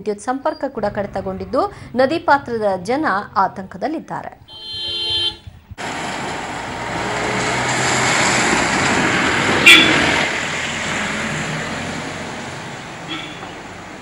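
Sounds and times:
flooded river rushing: 0:05.8 - 0:14.0.

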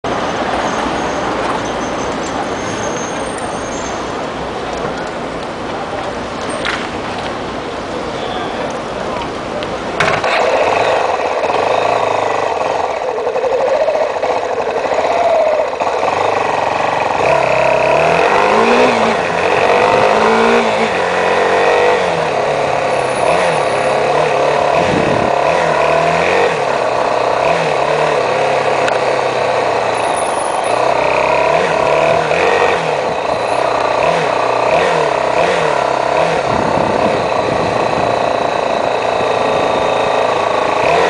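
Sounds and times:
road noise: 0:00.0 - 0:41.0
motorcycle engine accelerating: 0:08.7 - 0:41.0.

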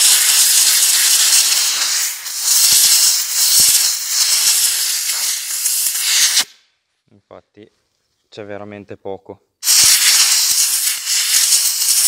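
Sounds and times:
compressed air blow gun hissing: 0:00.0 - 0:06.6, 0:09.6 - 0:12.0.

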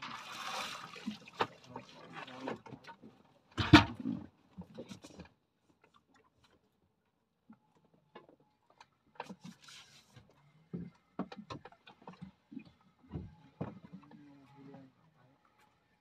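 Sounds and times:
knocks and clicks on boat: 0:10.8 - 0:14.1.

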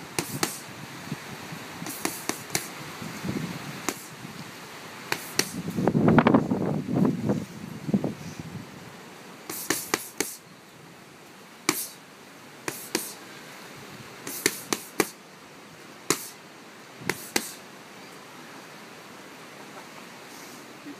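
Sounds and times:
boxing gloves hitting pads: 0:00.2 - 0:00.6, 0:01.9 - 0:02.7, 0:03.9 - 0:04.1, 0:05.1 - 0:05.6, 0:09.5 - 0:10.4, 0:12.7 - 0:13.2, 0:14.3 - 0:15.2, 0:16.1 - 0:16.4, 0:17.1 - 0:17.6.

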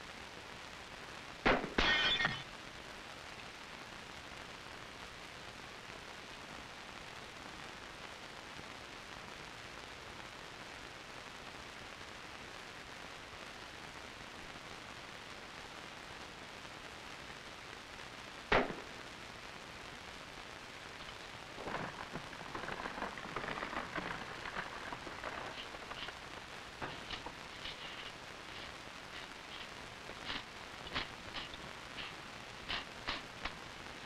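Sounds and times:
crackling and rustling: 0:00.0 - 0:34.0
steady hiss: 0:00.0 - 0:34.0
rifle shot: 0:01.4 - 0:02.1, 0:18.5 - 0:18.9.

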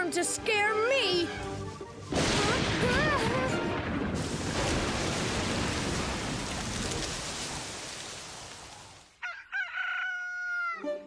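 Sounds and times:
steady rain: 0:01.9 - 0:09.2
rooster crowing: 0:09.2 - 0:11.0.

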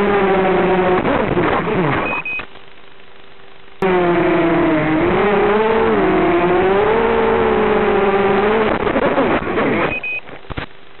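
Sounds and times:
short high beep: 0:02.0 - 0:02.5, 0:09.8 - 0:10.3.

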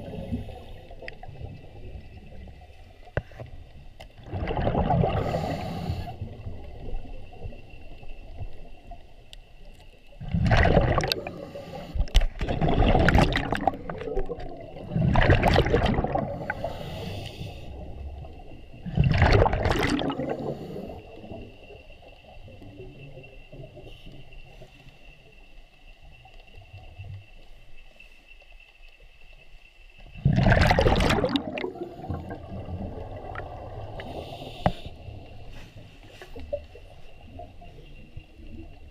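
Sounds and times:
underwater water bursts: 0:04.2 - 0:06.5, 0:10.2 - 0:17.9, 0:18.8 - 0:21.4, 0:30.1 - 0:35.4.

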